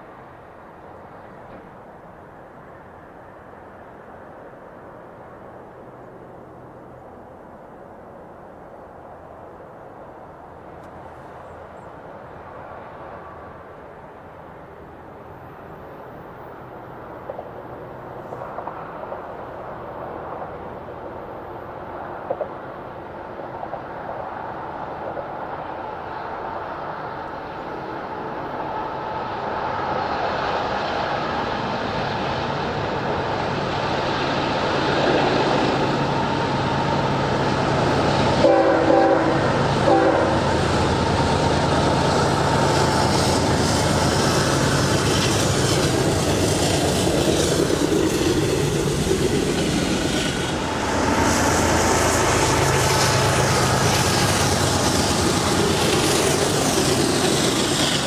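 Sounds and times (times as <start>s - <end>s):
train wheels on rails: 0.0s - 6.0s, 10.6s - 58.0s
diesel locomotive engines: 0.0s - 58.0s
train horn blasts: 38.4s - 40.6s.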